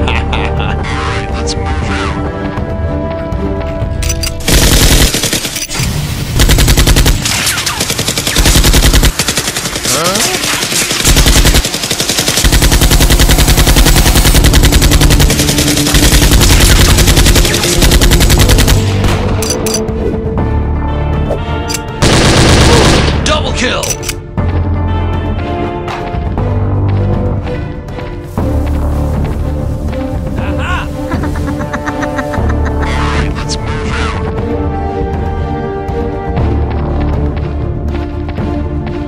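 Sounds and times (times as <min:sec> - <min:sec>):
background music: 0:00.0 - 0:39.0
automatic gunfire bursts: 0:04.4 - 0:05.7, 0:06.4 - 0:18.9, 0:22.0 - 0:23.1.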